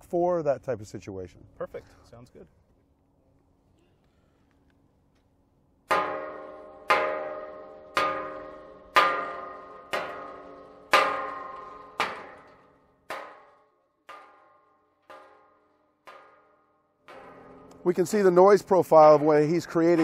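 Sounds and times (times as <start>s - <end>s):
rubber mallet tapping metal fence: 5.9s - 20.0s.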